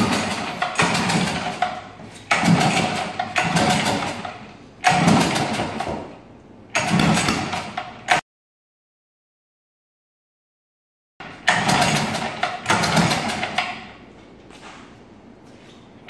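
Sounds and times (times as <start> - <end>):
small engine cranking: 0.0 - 5.7, 11.4 - 13.6
recoil starter yank: 0.0 - 8.2, 11.2 - 14.1.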